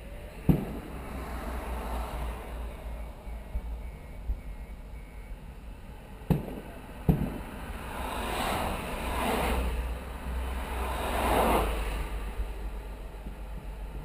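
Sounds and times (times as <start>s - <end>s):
cars driving past: 0.0s - 14.0s
firework bangs: 0.2s - 2.3s, 6.1s - 9.8s.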